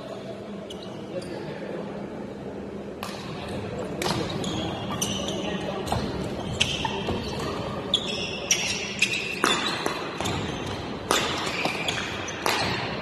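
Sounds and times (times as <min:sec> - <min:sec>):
shoes squeaking on court floor: 0:00.6 - 0:01.5, 0:04.0 - 0:13.0
racket hitting shuttlecock: 0:03.0 - 0:03.4, 0:04.0 - 0:04.4, 0:08.6 - 0:13.0.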